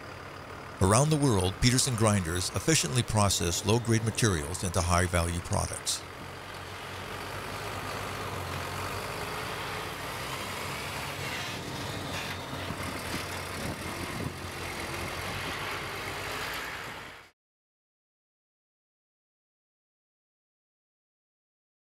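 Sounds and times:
diesel engine droning: 0.0s - 17.3s.

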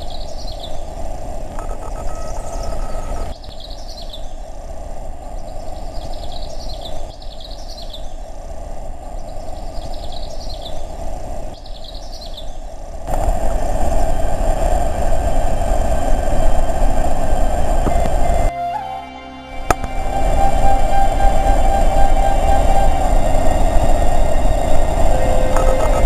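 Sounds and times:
birds chirping: 0.0s - 0.8s, 1.6s - 4.4s, 5.4s - 8.3s, 9.2s - 11.0s, 11.6s - 12.6s, 19.7s - 26.0s
waterfall roaring: 19.7s - 26.0s.

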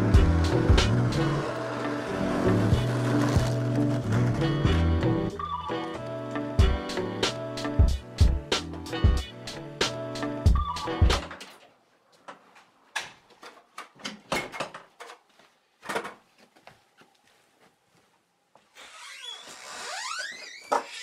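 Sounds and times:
footsteps in a hallway: 11.5s - 21.0s.

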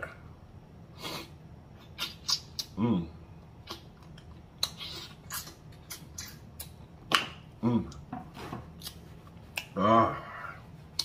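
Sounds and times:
wet lip smacks and clicks: 2.0s - 2.8s, 3.6s - 8.0s, 8.8s - 9.8s.

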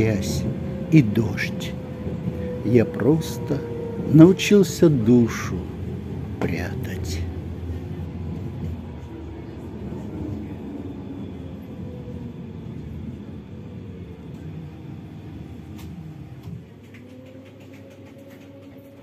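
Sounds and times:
tram wheels rumbling on rails: 0.0s - 19.0s
click: 15.7s - 17.2s.

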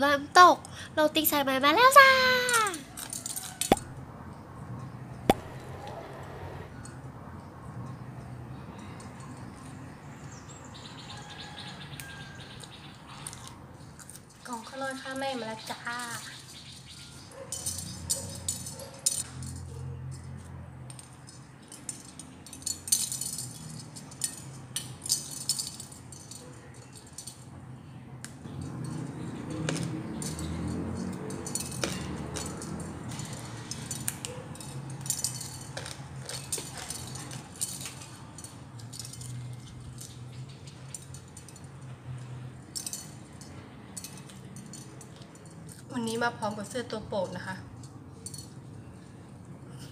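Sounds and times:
shell wind chime clinking: 28.5s - 46.2s.

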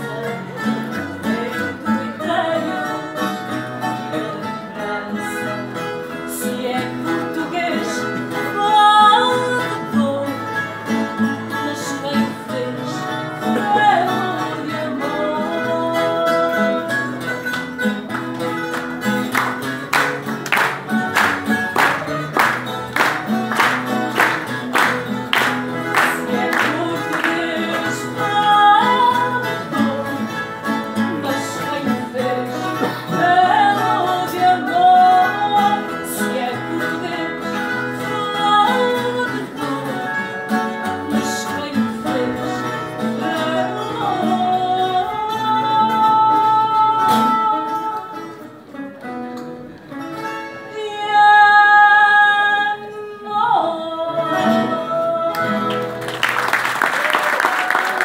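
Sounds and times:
woman singing slow song: 0.0s - 10.8s, 11.5s - 17.4s, 25.9s - 48.6s, 50.7s - 55.9s
plucked acoustic guitar: 0.0s - 58.0s.

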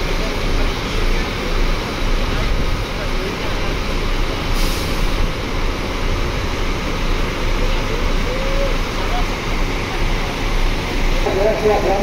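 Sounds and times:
diesel engines idling: 0.0s - 12.0s
air hiss: 4.5s - 5.4s.

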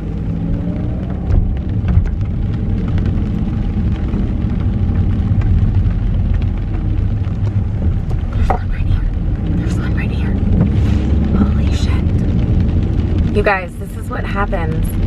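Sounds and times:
car engine: 0.0s - 15.0s
road rumble: 0.0s - 15.0s.

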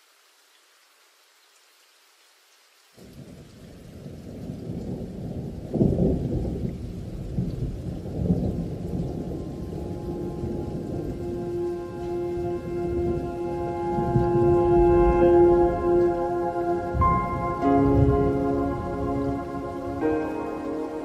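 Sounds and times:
faint rain: 0.0s - 21.0s
rolling thunder rumble: 4.0s - 21.0s
steady musical tones: 9.5s - 21.0s.

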